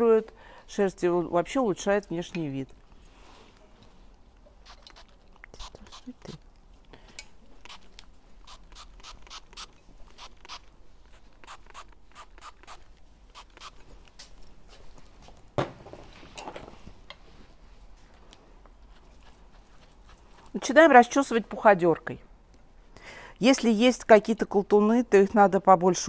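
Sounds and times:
spray bottle spritzing: 4.6 - 6.0, 7.6 - 10.6.

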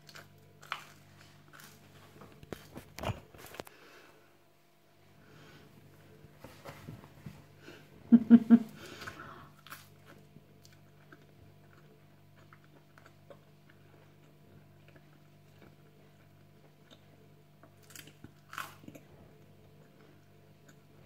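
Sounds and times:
steady low hum: 0.0 - 21.0
quiet chewing: 8.8 - 21.0
crunchy bite into toast: 17.8 - 19.0.

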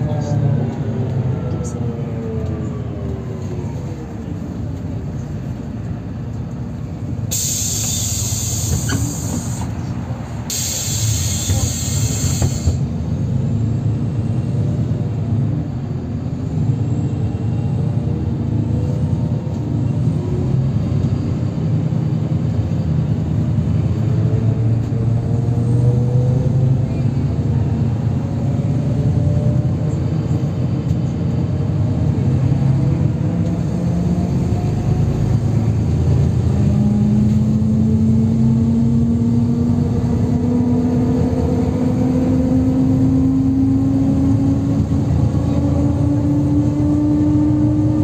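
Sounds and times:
bus engine and road rumble: 0.0 - 48.0
loud hiss: 7.3 - 9.6, 10.5 - 12.7.

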